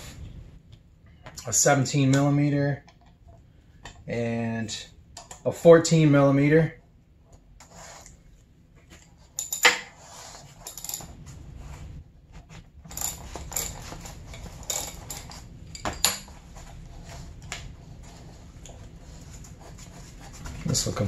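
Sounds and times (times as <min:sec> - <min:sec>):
wrenches clinking on metal: 0:09.2 - 0:11.2, 0:12.8 - 0:16.4.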